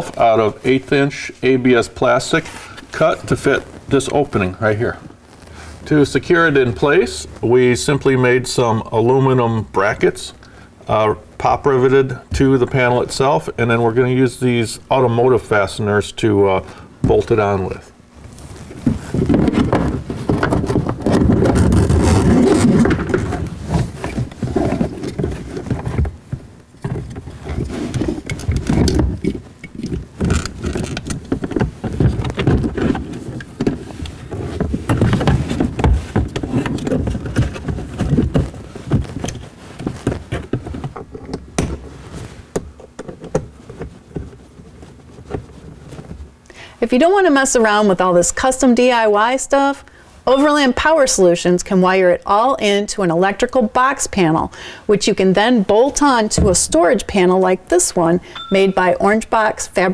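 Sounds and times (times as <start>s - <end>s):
plastic panel rubbing and scraping: 18.2s - 46.4s.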